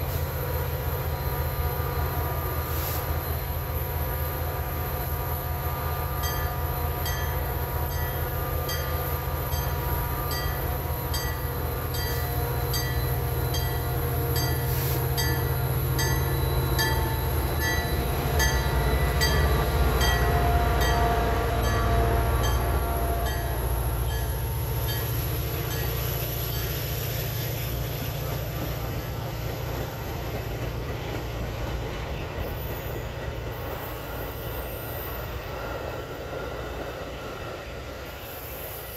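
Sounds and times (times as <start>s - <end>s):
diesel locomotive engine rumble: 0.0s - 38.9s
train wheels clicking over rail joints: 23.3s - 34.4s.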